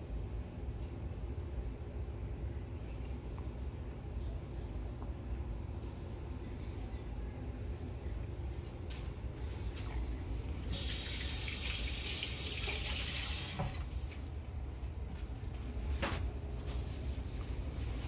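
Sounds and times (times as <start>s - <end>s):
kitchen tap running: 10.7s - 14.3s.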